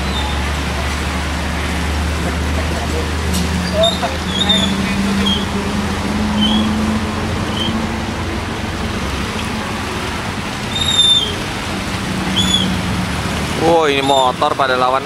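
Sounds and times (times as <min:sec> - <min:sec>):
low engine hum: 0:00.0 - 0:15.0
traffic and tyre noise: 0:00.0 - 0:15.0
short high squeaks: 0:10.7 - 0:11.4.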